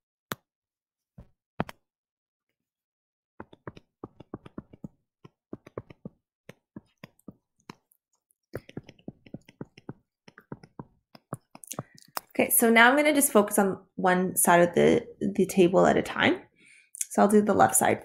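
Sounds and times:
stylus tapping on tablet screen: 3.4s - 7.9s, 8.6s - 12.3s.

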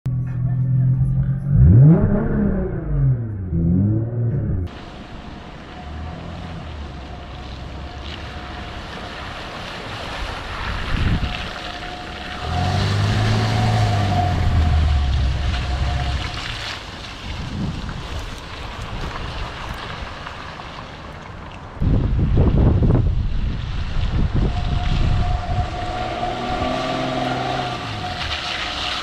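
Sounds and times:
car engine pulling: 0.1s - 21.4s, 23.0s - 29.0s
tyres churning mud: 4.7s - 21.8s
wind buffeting microphone: 10.2s - 20.2s, 21.8s - 28.3s.

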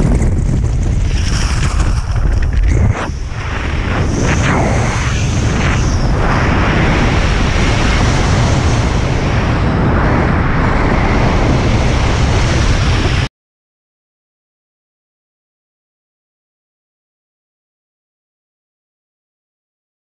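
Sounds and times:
wind roaring past microphone: 0.0s - 13.3s.

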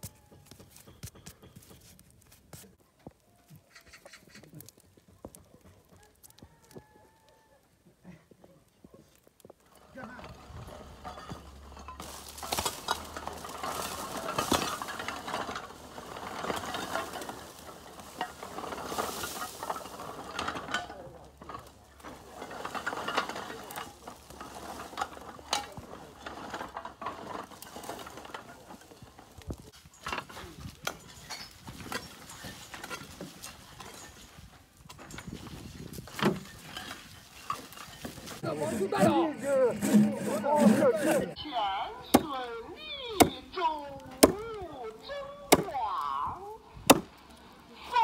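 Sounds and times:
roof tiles clattering and scraping: 8.4s - 41.4s.

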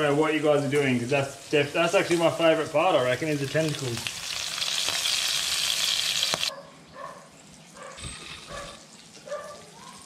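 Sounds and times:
food sizzling in hot oil: 0.0s - 6.5s.

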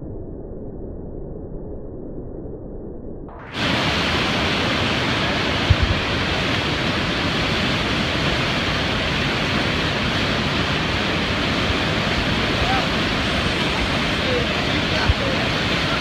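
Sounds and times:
whitewater rapids rushing: 3.5s - 16.0s.

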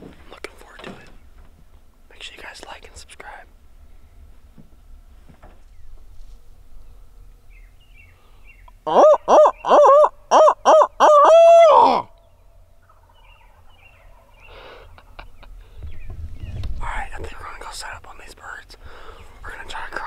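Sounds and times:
owl call hooting: 8.7s - 15.2s.

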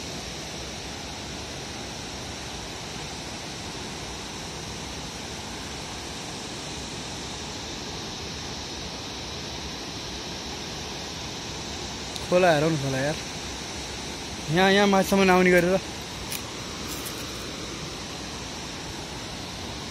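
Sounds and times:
river rushing over rocks: 0.1s - 19.9s.

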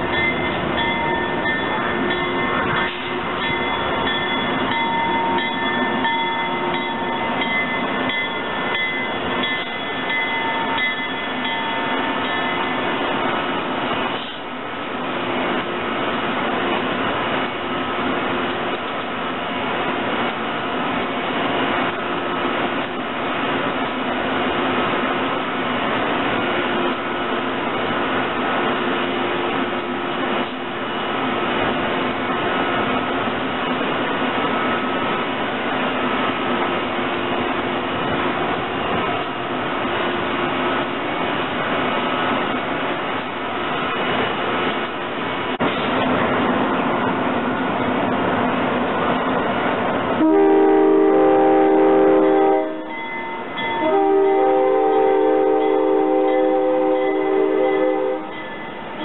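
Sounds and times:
locomotive humming: 0.0s - 59.0s
train horn chord: 50.2s - 53.0s, 53.8s - 58.4s.

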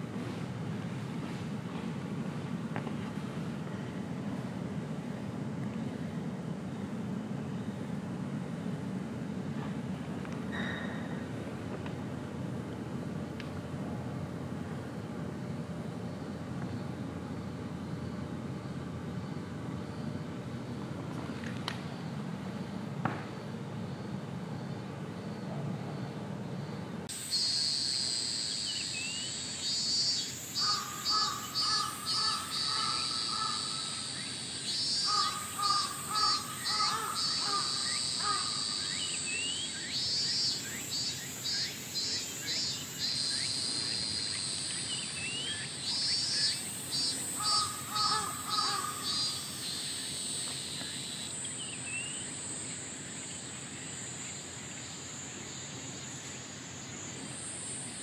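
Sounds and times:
high-pitched insect drone: 26.6s - 58.0s.

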